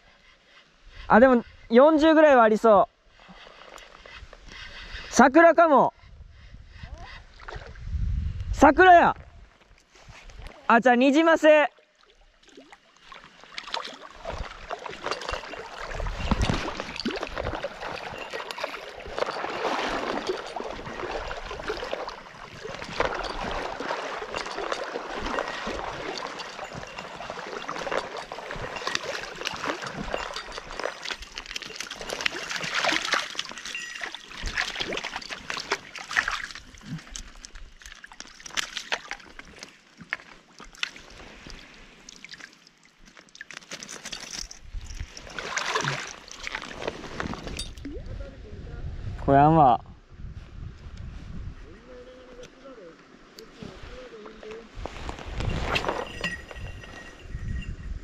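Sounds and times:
water splashing and sloshing: 6.9 - 7.9, 11.4 - 48.1, 52.9 - 57.8.

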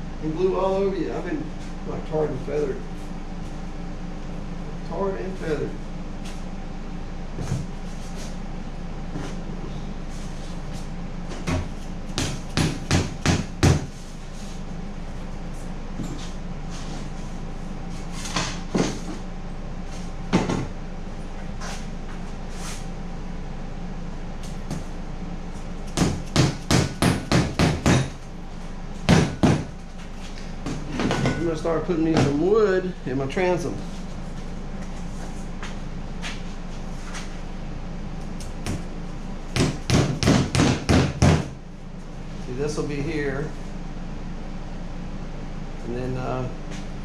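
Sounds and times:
mallet knocking on foam board: 39.6 - 41.5.

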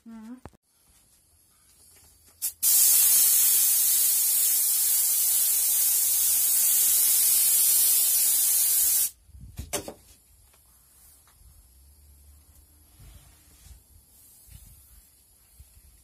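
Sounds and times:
spray gun hissing: 2.4 - 9.2.

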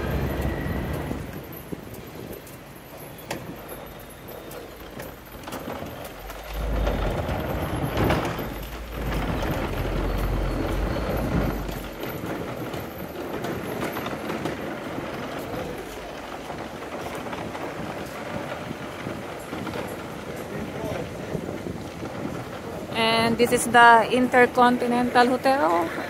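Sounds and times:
street traffic: 0.0 - 26.0
heavy low rumble: 5.7 - 13.4.

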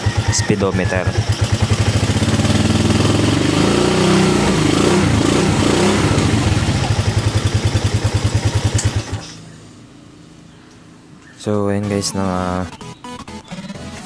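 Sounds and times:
motorcycle engine revving: 0.0 - 9.6.

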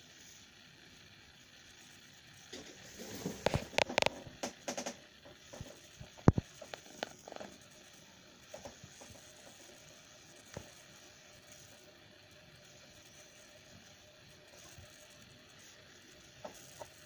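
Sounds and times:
faint ticks: 3.4 - 17.0.

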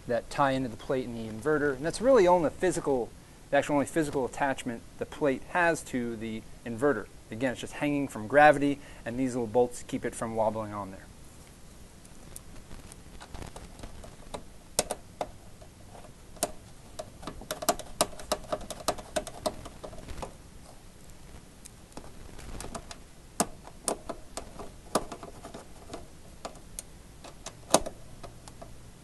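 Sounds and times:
screwdriver clicking on metal bolts: 14.3 - 20.0, 23.4 - 28.8.

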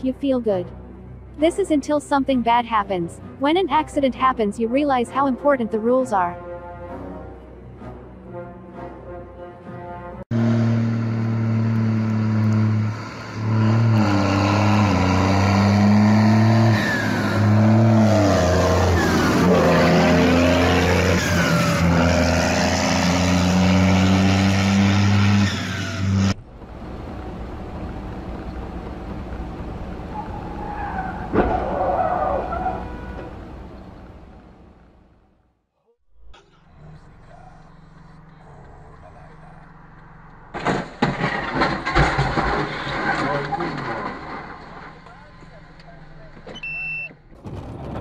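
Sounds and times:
road noise: 0.0 - 48.0
car engine running loud: 10.3 - 30.4.

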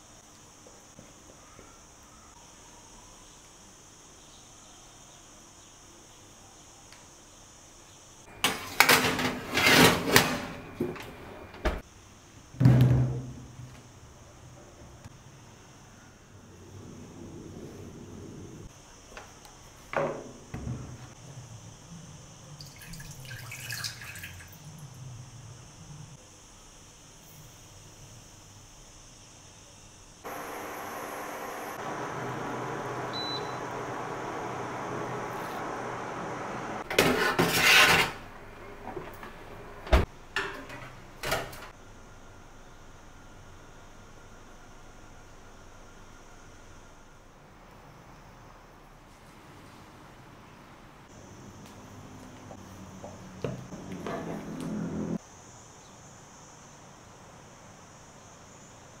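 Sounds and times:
metal tin scraping on oven rack: 8.8 - 10.6, 36.9 - 38.2.

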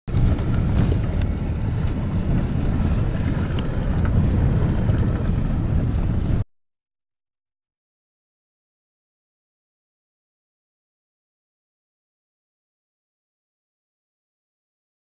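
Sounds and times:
car road noise: 0.1 - 6.4
wind buffeting microphone: 0.1 - 6.4.

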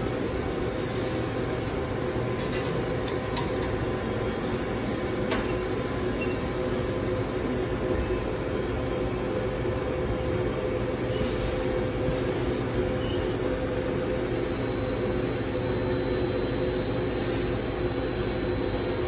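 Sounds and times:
machine mechanical hum: 0.0 - 19.0.

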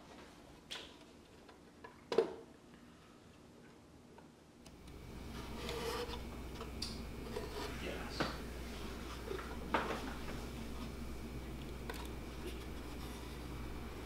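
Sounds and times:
low room hum: 0.0 - 14.0
hands rubbing wooden box: 7.2 - 11.0, 12.1 - 13.8.

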